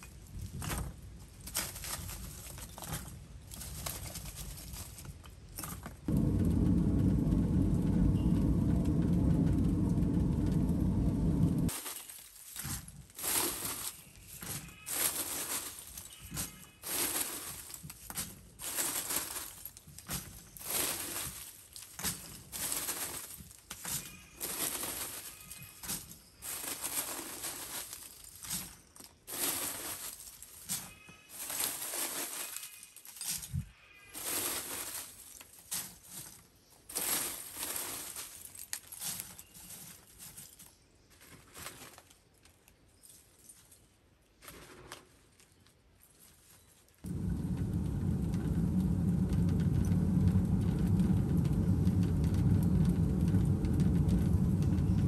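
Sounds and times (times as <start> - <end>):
sticks and charcoal clattering: 0.0 - 42.8
loud steady rushing noise: 6.1 - 11.7, 47.1 - 55.0
knocks and scrapes of charcoal: 8.4 - 42.2.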